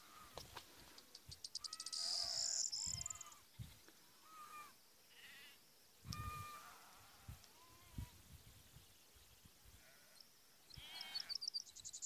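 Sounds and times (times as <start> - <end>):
small birds singing: 0.0 - 12.0
rapid high bird trill: 1.3 - 3.4.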